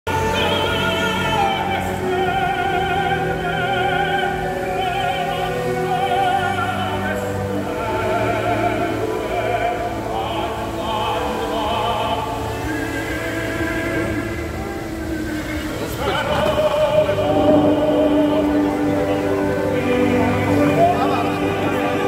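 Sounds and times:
operatic singing: 0.0s - 22.0s
orchestra playing: 0.1s - 22.0s.

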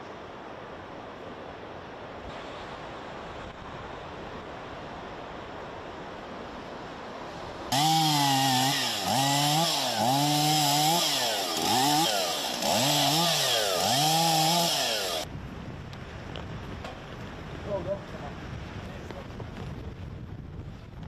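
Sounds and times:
wind: 0.0s - 21.0s
chainsaw cutting wood: 7.7s - 15.3s.

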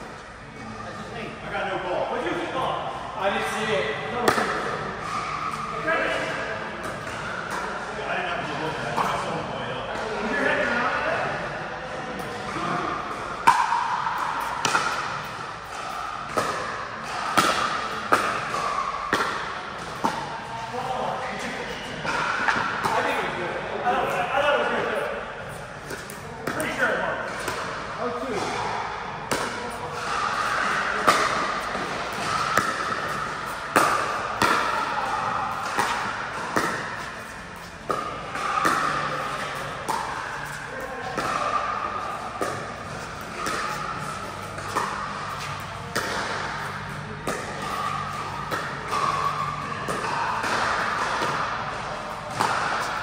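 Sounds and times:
paddles hitting plastic ball: 29.3s - 53.0s.

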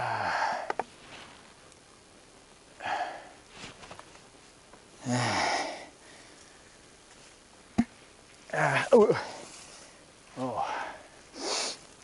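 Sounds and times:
man breathing out heavily: 0.0s - 0.8s, 2.8s - 3.4s, 5.0s - 6.6s, 9.1s - 11.8s
man groaning: 5.0s - 5.8s, 8.5s - 9.4s.

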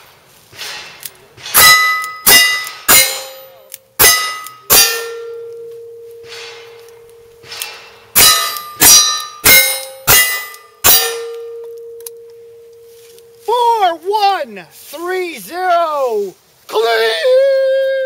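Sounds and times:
steel target plate ringing: 1.4s - 13.5s.

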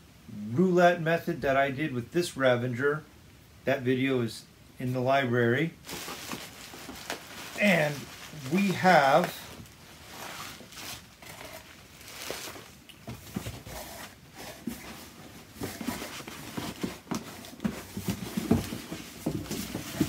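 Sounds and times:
bubble wrap crinkling: 5.8s - 20.0s
cardboard boxes being handled: 5.8s - 20.0s.

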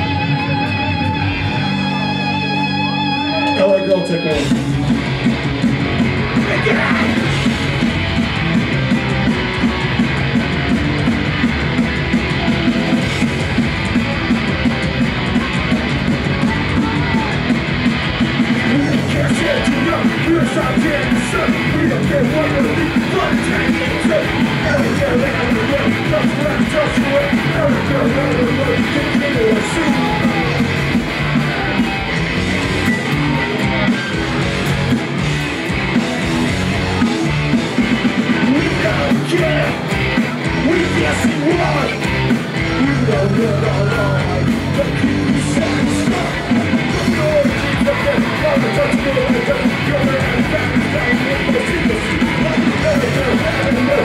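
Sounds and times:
drums: 0.0s - 54.0s
electric guitars: 0.0s - 54.0s
person singing: 18.7s - 30.7s, 42.7s - 54.0s.

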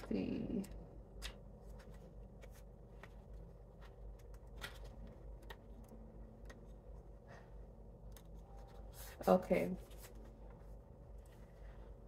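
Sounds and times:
low steady hum: 0.0s - 12.0s
cards clicking and rustling: 0.6s - 6.6s.

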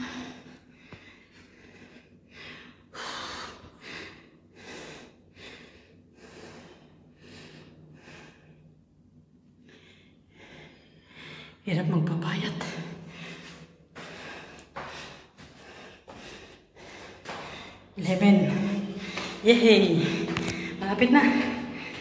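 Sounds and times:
woman panting hard: 13.0s - 19.4s, 20.0s - 22.0s.

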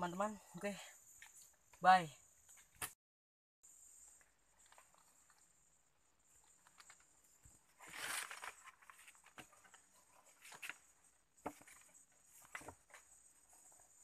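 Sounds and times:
faint high-pitched hiss: 3.6s - 14.0s.

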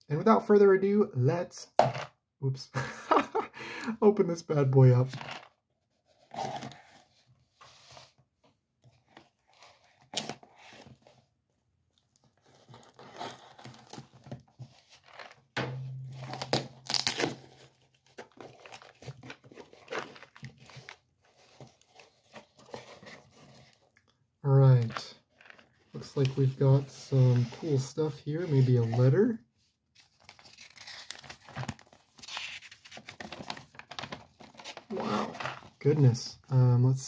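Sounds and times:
tape tearing: 15.0s - 17.8s.

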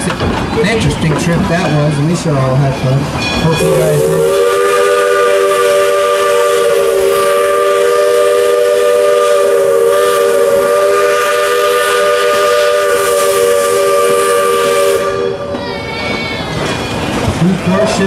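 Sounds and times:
steam locomotive whistle blast: 3.5s - 15.6s.

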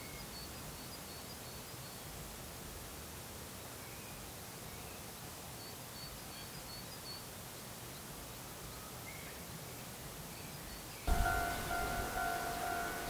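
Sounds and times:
steady outdoor hiss: 0.0s - 13.0s
distant birds chirping: 11.0s - 13.0s.

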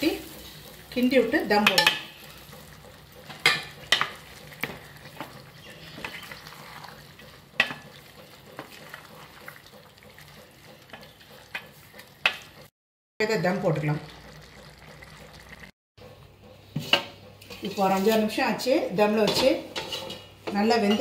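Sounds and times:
rice simmering: 0.0s - 12.7s, 13.9s - 15.7s.

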